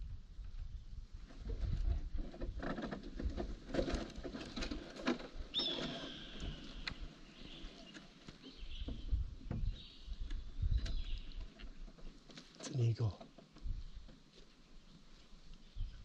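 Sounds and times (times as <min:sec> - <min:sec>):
bird of prey whistled call: 0:05.5 - 0:06.7.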